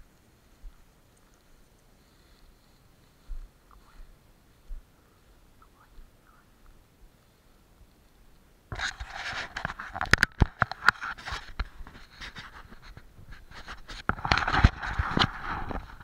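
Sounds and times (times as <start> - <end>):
dry grass swishing and crackling: 0.0 - 5.6.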